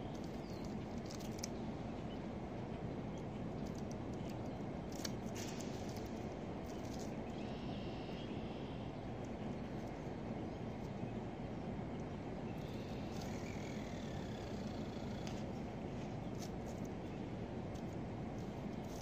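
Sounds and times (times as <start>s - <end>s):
low outdoor rumble: 0.0s - 19.0s
fishing line and reel whirring: 12.6s - 15.4s.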